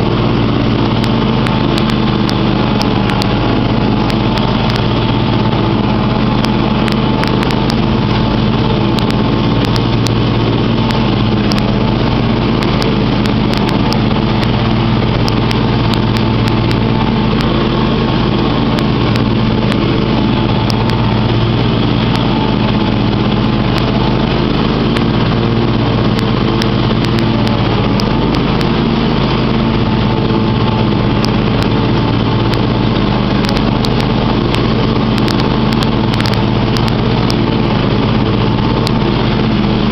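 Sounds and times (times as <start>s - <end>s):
riding mower engine droning: 0.0s - 39.9s.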